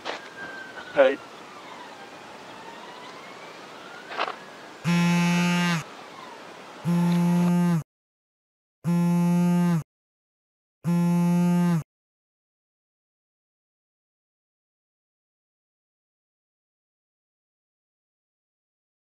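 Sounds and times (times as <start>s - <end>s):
loud buzzy tones: 4.8s - 5.9s, 6.8s - 7.8s, 8.8s - 9.8s, 10.8s - 11.8s.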